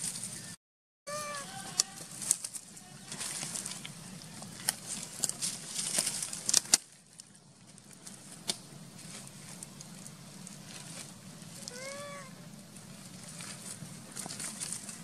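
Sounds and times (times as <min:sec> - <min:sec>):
dry leaves and twigs crackling: 0:00.0 - 0:15.0.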